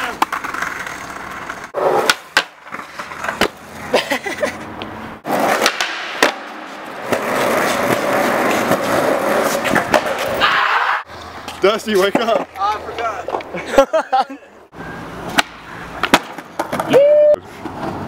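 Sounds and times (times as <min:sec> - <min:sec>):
skateboard clacks on concrete: 0:00.0 - 0:03.6, 0:05.3 - 0:10.4, 0:15.3 - 0:16.9
skateboard loud crack: 0:00.0 - 0:03.9, 0:05.2 - 0:10.7, 0:15.2 - 0:17.0
skateboard wheels rolling: 0:00.0 - 0:13.8, 0:14.6 - 0:18.0.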